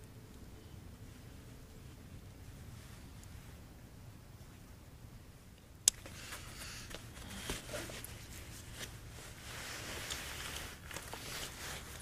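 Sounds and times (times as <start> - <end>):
gloves and jacket rustling: 6.1 - 12.0.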